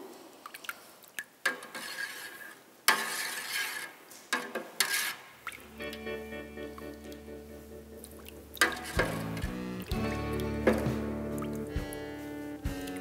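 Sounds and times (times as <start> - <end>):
ladle stirring in metal pot: 1.4 - 5.6, 8.6 - 9.4
background music: 5.7 - 13.0.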